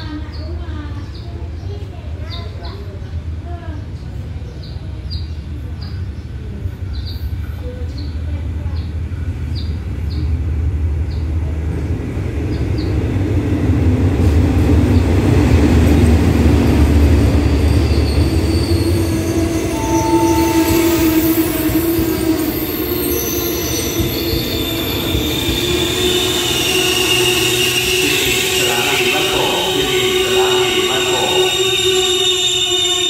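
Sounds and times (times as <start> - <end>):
diesel locomotive rumbling: 0.0 - 33.0
train coaches rolling: 5.3 - 33.0
metallic brake squealing: 17.5 - 33.0.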